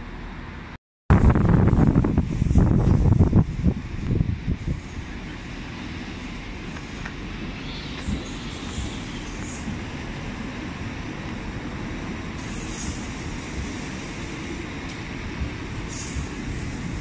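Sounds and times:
train wheels rumbling on rails: 0:00.0 - 0:17.0
high-pitched wheel squeals: 0:07.5 - 0:09.7.

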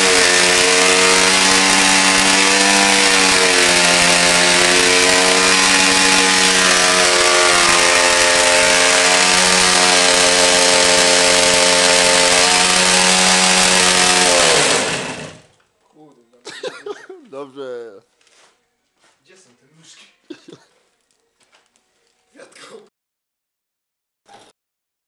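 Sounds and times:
motorcycle engine at high revs: 0:00.0 - 0:15.5
spinning tyre hissing: 0:00.0 - 0:15.5.

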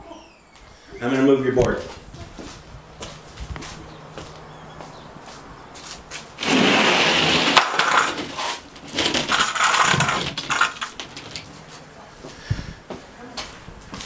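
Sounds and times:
plywood scraping and knocking: 0:06.4 - 0:11.6.

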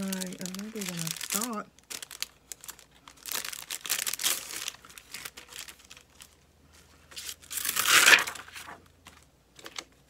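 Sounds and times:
plastic sheets crinkling: 0:00.0 - 0:10.0.

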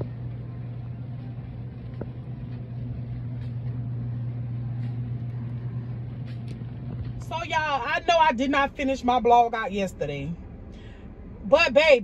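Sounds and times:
low store hum: 0:00.0 - 0:12.0.

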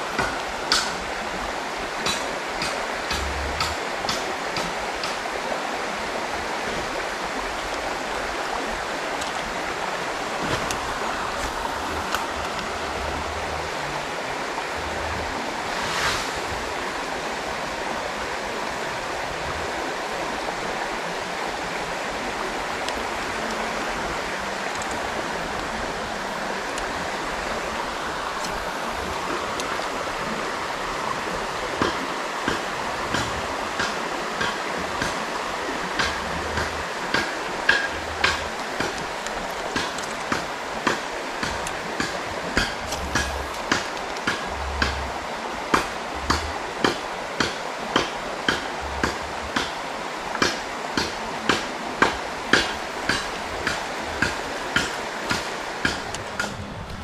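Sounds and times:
river water over rocks: 0:00.0 - 0:57.0
brief hiss: 0:15.7 - 0:16.7.

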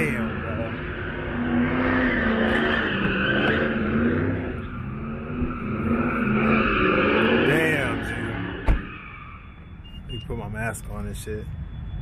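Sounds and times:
car engine at high revs: 0:00.0 - 0:09.0.

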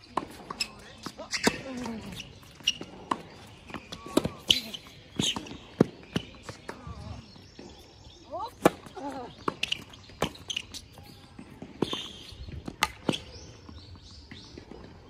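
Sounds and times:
tennis ball bouncing: 0:00.0 - 0:06.8.

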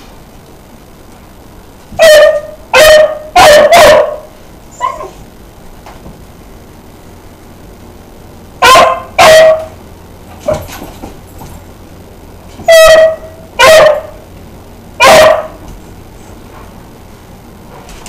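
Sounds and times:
dog barking: 0:02.0 - 0:05.2, 0:08.6 - 0:09.8, 0:12.7 - 0:14.2, 0:15.0 - 0:15.6.

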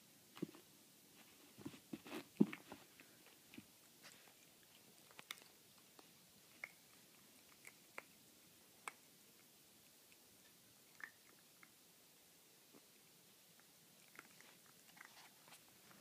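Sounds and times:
dog crunching kibble: 0:04.6 - 0:08.2.

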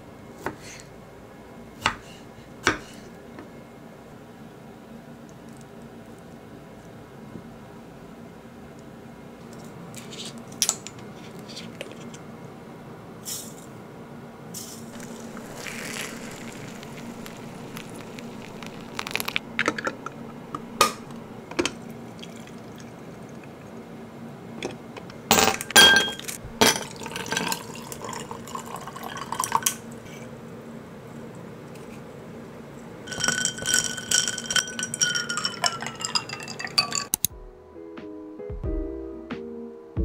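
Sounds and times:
steady low hum: 0:11.0 - 0:27.0
ice clinking in a glass: 0:15.0 - 0:19.8, 0:25.4 - 0:29.8, 0:33.1 - 0:37.2
loose tea tipped from a tin: 0:15.0 - 0:19.8
water pouring into a teapot: 0:15.0 - 0:23.6, 0:26.8 - 0:29.9, 0:33.1 - 0:37.1.

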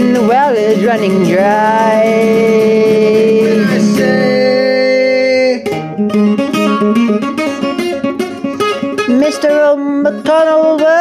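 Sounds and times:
acoustic guitar: 0:00.0 - 0:11.0
long held note: 0:01.4 - 0:05.7.

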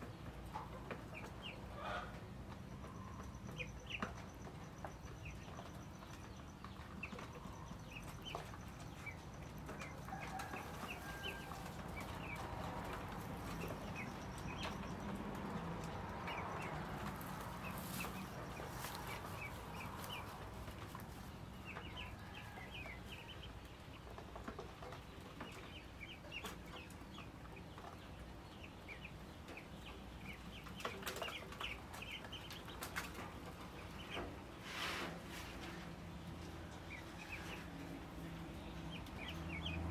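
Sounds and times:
chickens clucking: 0:00.0 - 0:39.9
faint rustle: 0:16.9 - 0:22.6, 0:32.4 - 0:36.5.

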